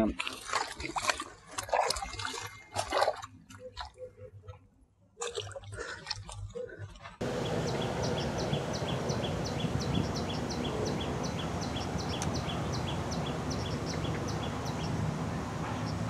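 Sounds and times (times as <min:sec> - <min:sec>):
low background rumble: 0:07.2 - 0:16.0.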